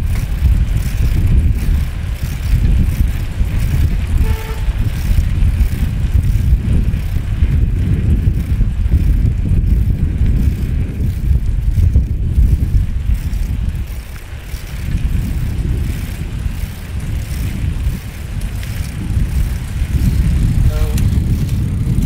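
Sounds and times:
road traffic rumble: 0:00.0 - 0:22.0
vehicle horn toot: 0:04.2 - 0:04.8, 0:20.6 - 0:21.1.

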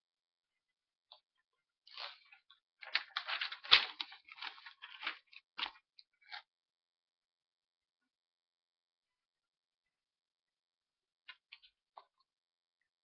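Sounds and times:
paper pad rustling: 0:01.9 - 0:06.5.

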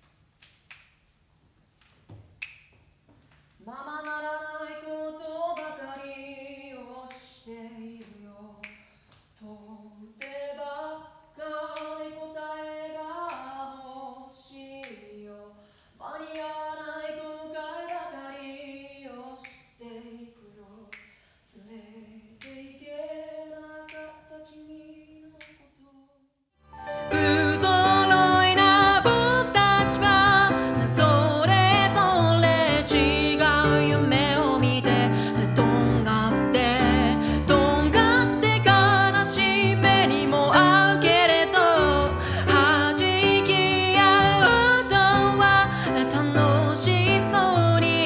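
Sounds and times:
finger snaps: 0:00.4 - 0:01.1, 0:01.8 - 0:04.2, 0:05.6 - 0:05.9, 0:08.0 - 0:09.3, 0:13.3 - 0:13.5, 0:14.8 - 0:15.1, 0:17.8 - 0:18.2, 0:19.4 - 0:19.8, 0:20.9 - 0:21.3, 0:22.4 - 0:22.6, 0:23.8 - 0:24.3, 0:25.4 - 0:25.7
woman singing a cappella: 0:03.6 - 0:26.2, 0:27.1 - 0:48.0
piano music with singing: 0:26.8 - 0:48.0.

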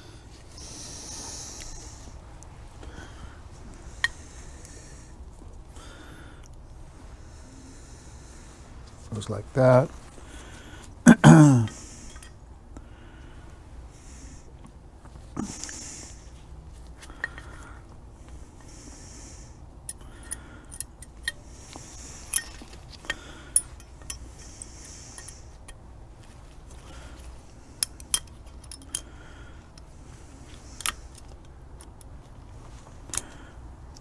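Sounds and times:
metallic clicks of brake pads: 0:03.7 - 0:05.6, 0:11.6 - 0:12.9, 0:14.6 - 0:19.2, 0:19.8 - 0:34.0.

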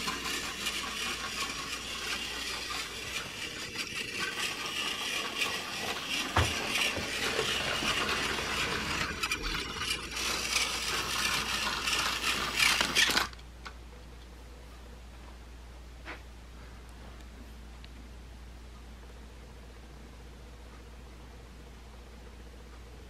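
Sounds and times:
toy train clattering on track: 0:00.0 - 0:13.4.

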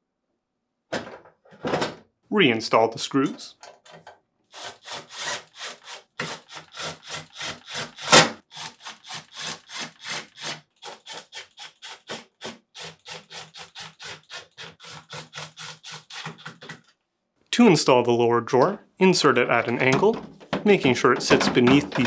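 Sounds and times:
cordless driver driving screws: 0:04.5 - 0:16.8.

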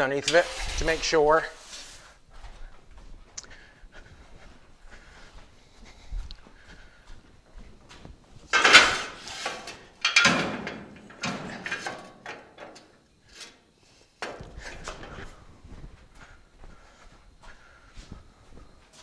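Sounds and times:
metal jack stands clattering: 0:08.5 - 0:12.9.

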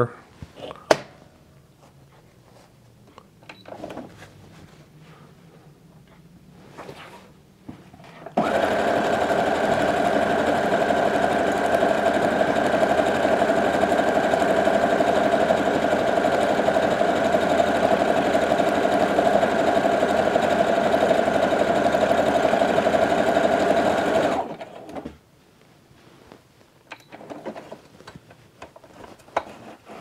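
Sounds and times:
sewing machine running: 0:08.4 - 0:25.0.

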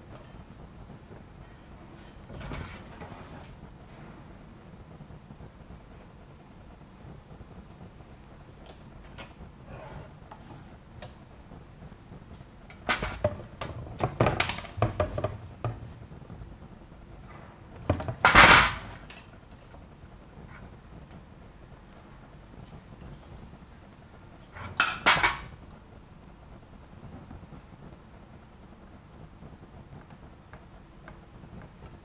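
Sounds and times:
sharp clattering knocks: 0:12.8 - 0:16.0.

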